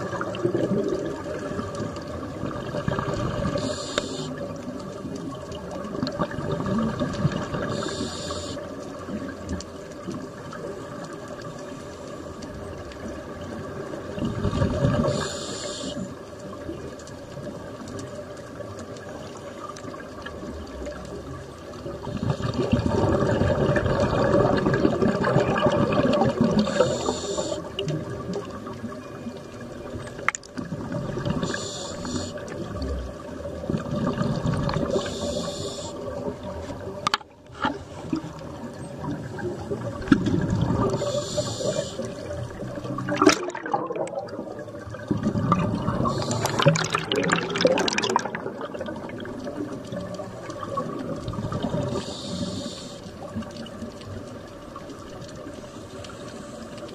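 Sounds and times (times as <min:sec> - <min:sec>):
faint steady hum: 0:00.0 - 0:56.9
muffled underwater rushing: 0:00.0 - 0:56.9.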